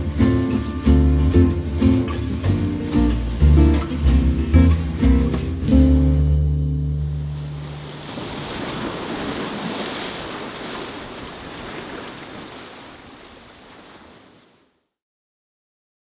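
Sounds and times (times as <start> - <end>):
waves washing over rocks: 0.0 - 14.7
guitar chord ringing: 2.8 - 7.8.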